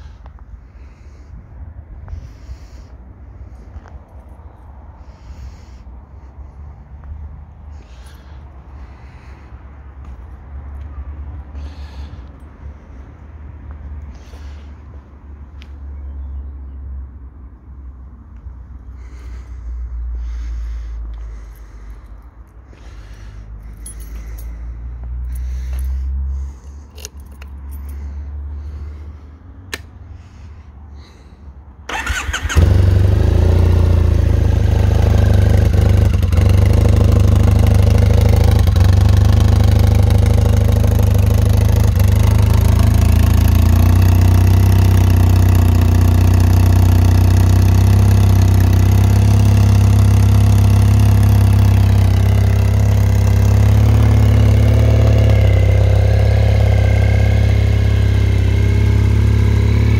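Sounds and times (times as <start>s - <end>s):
motorcycle engine starting and idling: 31.0s - 59.9s.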